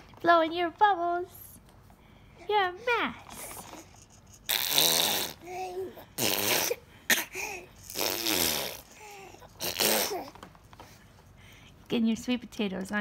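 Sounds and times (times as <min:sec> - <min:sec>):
baby vocal sounds: 0:02.4 - 0:10.4
baby blowing raspberries: 0:03.4 - 0:10.4.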